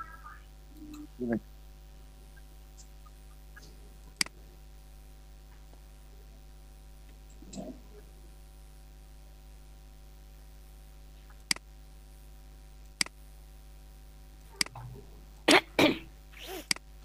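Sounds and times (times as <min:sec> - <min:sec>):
steady electrical hum: 0:00.0 - 0:17.0
computer mouse clicks: 0:11.3 - 0:11.6.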